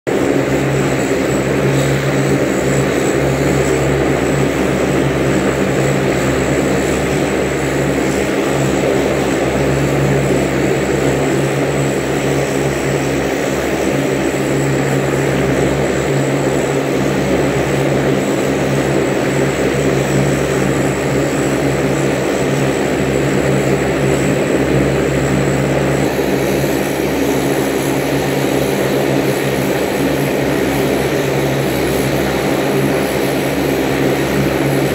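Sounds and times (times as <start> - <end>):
turboprop propeller drone: 0.0 - 34.9.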